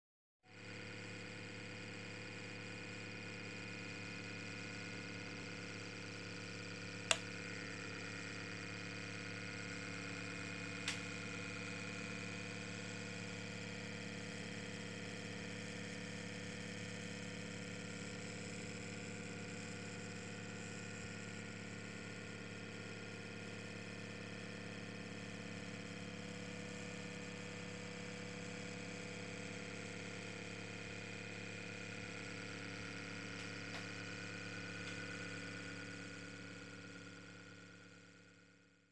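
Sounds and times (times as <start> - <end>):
sharp clicks: 7.1 - 7.3.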